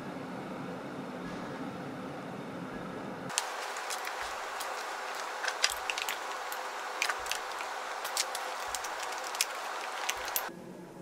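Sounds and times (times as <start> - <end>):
steady background hiss: 1.8 - 11.0
items clicking into bag: 3.3 - 10.5.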